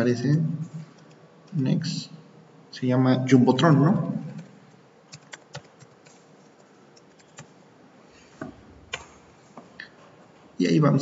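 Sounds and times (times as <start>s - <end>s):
keyboard typing: 0.8s - 1.6s, 3.7s - 7.6s.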